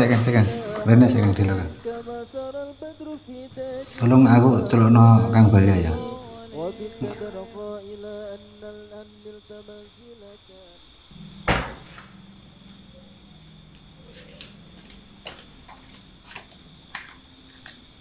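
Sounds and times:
crickets chirping: 0:00.0 - 0:18.0
loud thump: 0:11.4 - 0:12.1.

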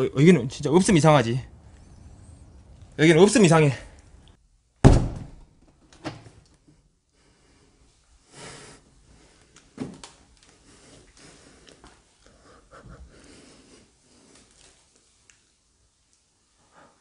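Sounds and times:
footstep thuds: 0:04.8 - 0:05.5.

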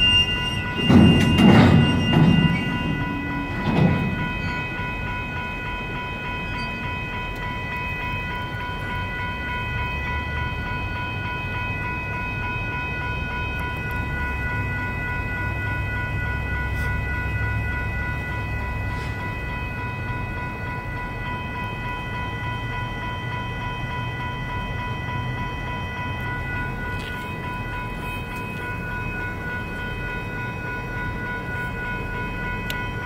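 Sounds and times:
low rumble of freight cars: 0:00.0 - 0:33.0
railroad crossing bells ringing: 0:00.0 - 0:33.0.

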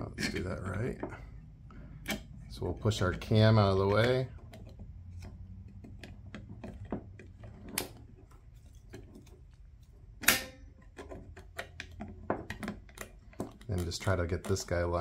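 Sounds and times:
plastic parts clicking and tapping: 0:00.3 - 0:15.0
sharp plastic clack: 0:10.2 - 0:14.7.

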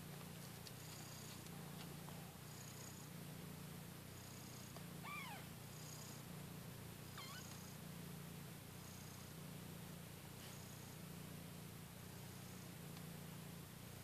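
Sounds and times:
cat purring: 0:02.4 - 0:09.8
kitten mewing: 0:05.0 - 0:05.5, 0:07.2 - 0:07.6.

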